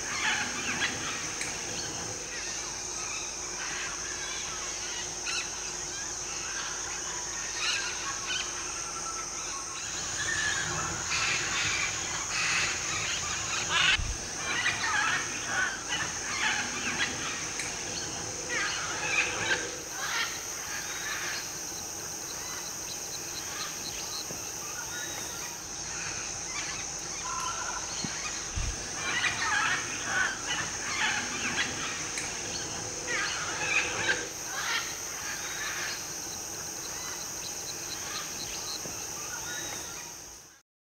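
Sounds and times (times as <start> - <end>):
insects droning: 0.0 - 40.6
macaws squawking: 9.9 - 40.0.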